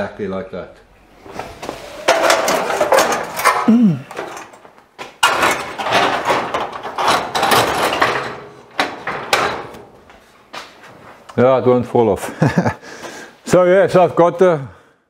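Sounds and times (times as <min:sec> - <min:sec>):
metal grille scraping and rattling: 0:01.2 - 0:10.0.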